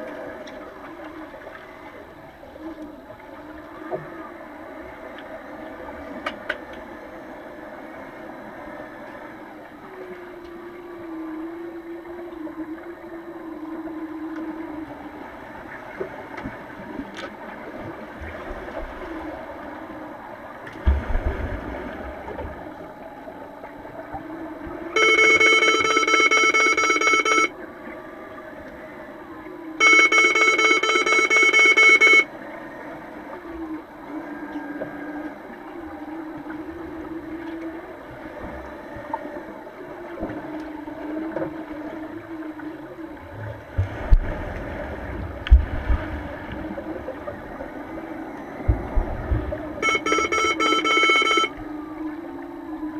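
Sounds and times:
underwater bubbles: 0.0 - 31.2, 32.2 - 52.9
underwater rushing water: 0.0 - 52.9
underwater electronic horn blasts: 23.6 - 28.6, 29.2 - 43.3, 46.6 - 52.9.

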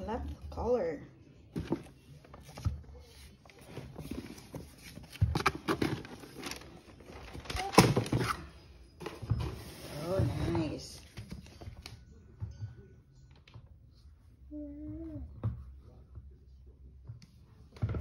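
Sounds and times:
paper and cardboard rustling: 1.6 - 8.5.

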